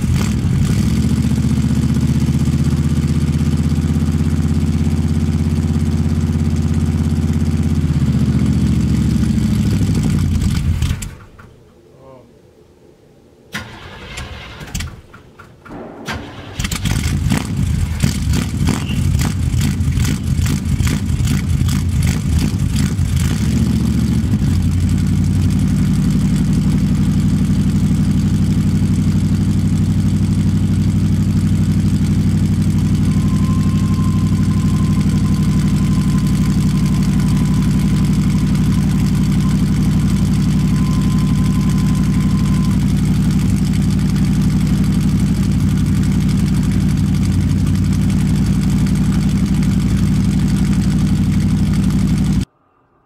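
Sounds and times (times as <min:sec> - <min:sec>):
engine idling: 0:00.0 - 0:11.5, 0:15.7 - 0:52.5
engine cranking and starting: 0:13.5 - 0:24.7, 0:31.0 - 0:52.2.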